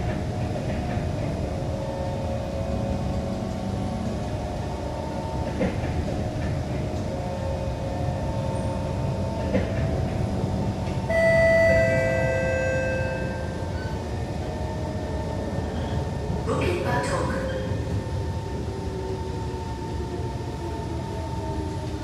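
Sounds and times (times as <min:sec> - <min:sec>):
train motor whine: 0:00.0 - 0:16.4
train low rumble: 0:00.0 - 0:22.0
high ringing tone: 0:11.1 - 0:14.2.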